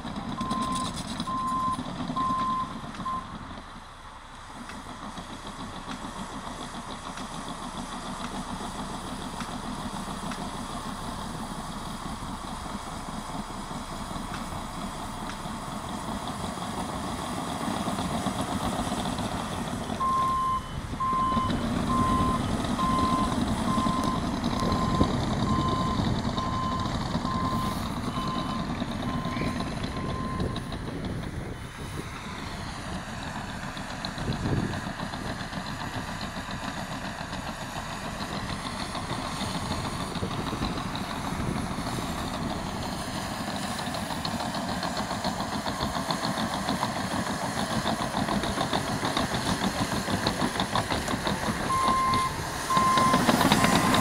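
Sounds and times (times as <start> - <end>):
bulldozer diesel engine under load: 0.0 - 54.0
reversing alarm beeping: 0.4 - 3.3, 20.0 - 30.7, 51.7 - 54.0.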